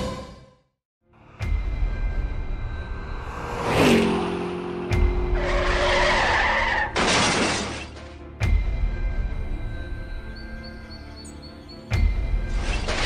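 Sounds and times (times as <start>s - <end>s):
background music: 0.0s - 13.0s
tyre skid screech: 5.3s - 7.0s
crash with shattering glass: 7.0s - 7.9s.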